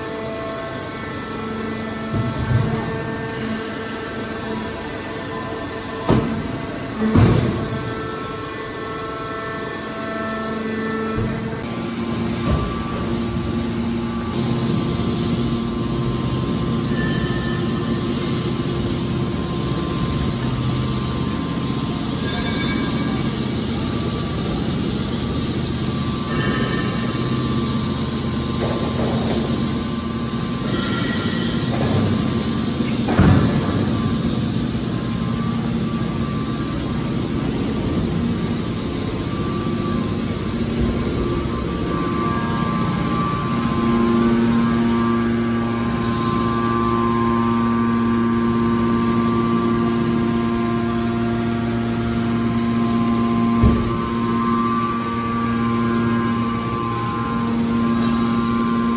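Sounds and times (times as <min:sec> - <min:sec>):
hydraulic pump humming: 0:00.0 - 0:58.9.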